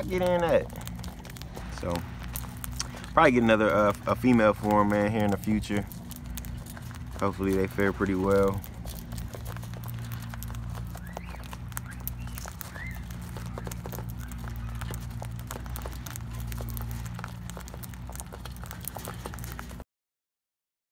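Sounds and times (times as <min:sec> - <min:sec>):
birds cracking seeds: 0:00.0 - 0:19.8
steady low hum: 0:00.0 - 0:19.8.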